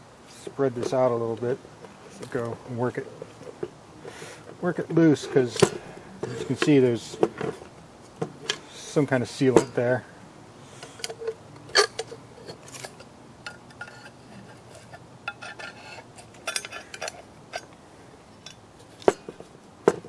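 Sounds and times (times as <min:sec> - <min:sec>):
screwdriver scraping metal: 0:10.8 - 0:17.7.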